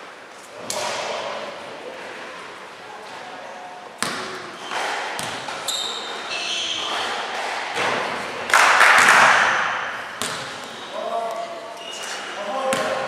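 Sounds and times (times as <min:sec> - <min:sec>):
basketball bouncing on court: 0:04.0 - 0:05.6, 0:08.5 - 0:11.4, 0:12.7 - 0:13.0
sneakers squeaking on floor: 0:04.0 - 0:08.2, 0:09.4 - 0:13.0.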